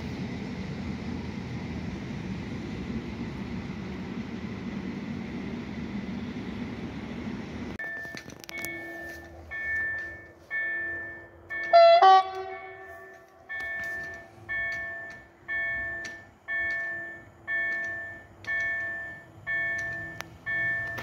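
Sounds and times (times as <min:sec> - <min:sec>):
electronic warning chime: 0:07.8 - 0:21.0
train horn blast: 0:11.7 - 0:13.5.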